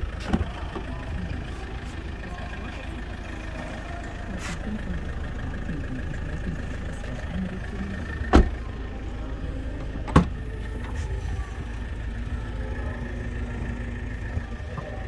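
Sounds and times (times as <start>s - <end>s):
car door shutting thud: 8.3s - 8.6s, 10.0s - 10.4s
tailgate unlatching clack: 10.0s - 10.4s.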